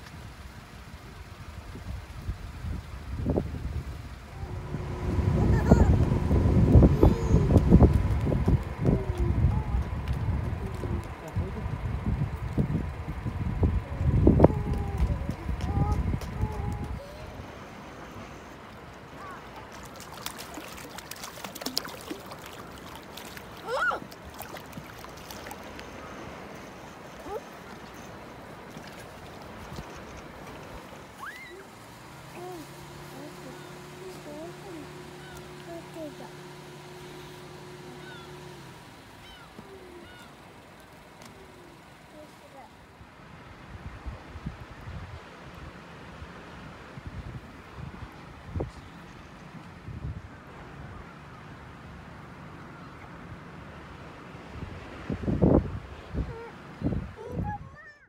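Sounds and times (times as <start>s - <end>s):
wind buffeting microphone: 0.0s - 17.7s, 43.5s - 51.1s, 54.5s - 58.0s
waves lapping against quay: 0.0s - 58.0s.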